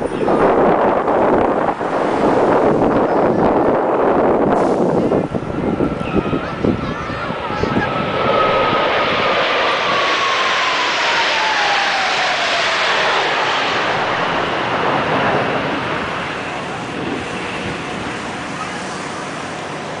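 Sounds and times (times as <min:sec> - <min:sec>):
jet fighters roaring past: 0:00.0 - 0:20.0
jet whine falling in pitch: 0:04.5 - 0:16.8.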